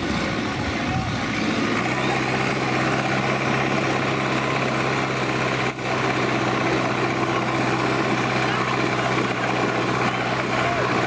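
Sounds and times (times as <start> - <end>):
tractor diesel engines under load: 0.0 - 11.0.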